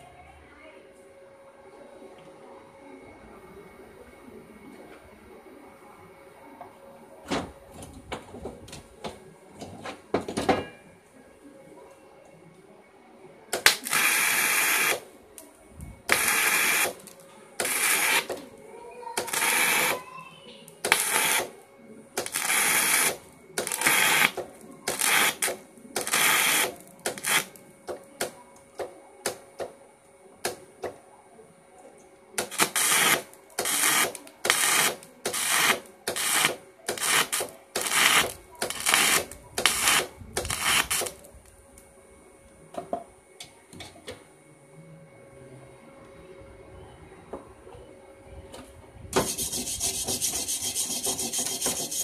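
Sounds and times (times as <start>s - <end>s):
welding arc crackling: 13.6s - 15.1s, 16.1s - 18.4s, 19.2s - 20.0s, 20.8s - 21.6s, 22.2s - 27.6s, 32.4s - 41.2s.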